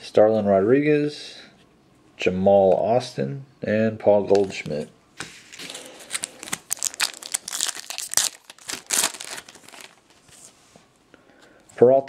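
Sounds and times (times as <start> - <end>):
foil wrapper tearing and crinkling: 5.5 - 10.2.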